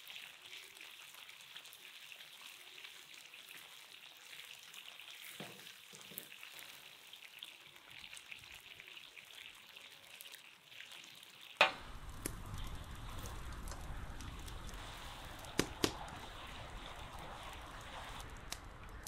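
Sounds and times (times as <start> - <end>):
chicken sizzling in oil: 0.0 - 19.0
wood fire crackling: 11.6 - 19.0.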